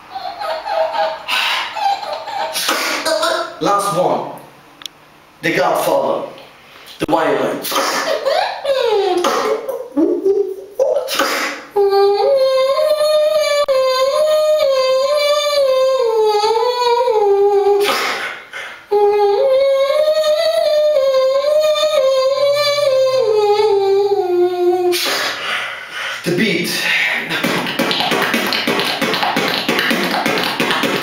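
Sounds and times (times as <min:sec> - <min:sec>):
beatboxer humming a melody: 0:02.4 - 0:03.8, 0:08.9 - 0:31.0
breathy bursts: 0:24.9 - 0:30.2.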